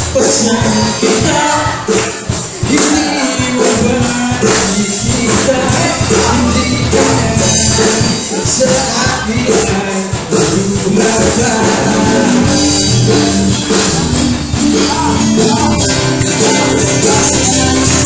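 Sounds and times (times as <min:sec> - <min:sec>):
bass guitar: 0:00.0 - 0:18.0
drum kit with cymbals: 0:00.0 - 0:18.0
electric guitars: 0:00.0 - 0:18.0
man singing into a microphone: 0:00.0 - 0:18.0.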